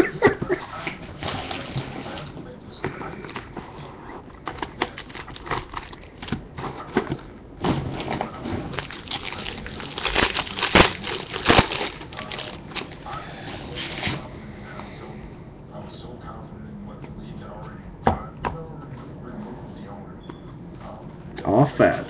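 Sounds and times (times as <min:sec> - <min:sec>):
packaging crinkling and rustling: 0:03.3 - 0:07.2, 0:08.0 - 0:13.1.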